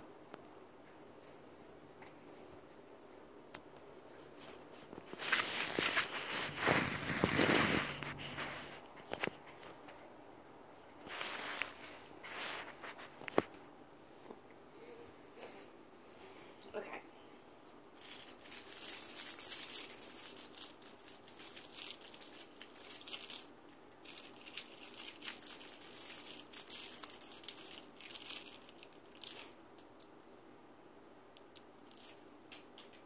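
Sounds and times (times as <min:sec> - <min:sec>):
crinkly plastic scrunched: 0:04.4 - 0:10.0, 0:11.0 - 0:13.6, 0:18.0 - 0:30.1, 0:31.4 - 0:33.0.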